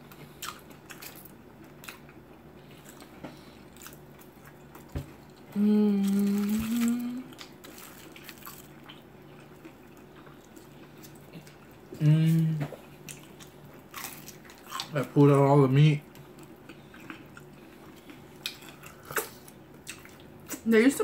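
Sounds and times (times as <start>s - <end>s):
chewing crunches and smacks: 0.0s - 12.0s, 12.6s - 20.7s
person humming mmm: 5.5s - 7.4s, 12.0s - 12.8s.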